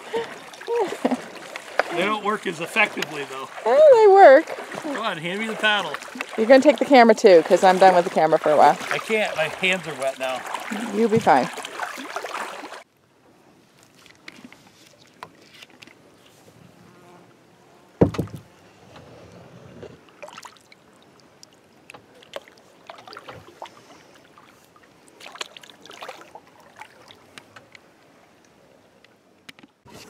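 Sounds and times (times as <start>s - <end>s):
kayak paddle splashing: 0.0s - 12.9s, 13.6s - 16.5s, 20.0s - 28.4s
sharp loud knock: 18.0s - 18.4s.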